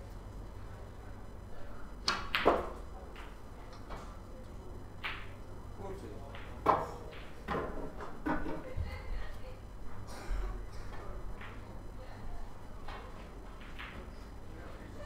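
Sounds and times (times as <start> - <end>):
snooker balls clicking: 12.8 - 14.2.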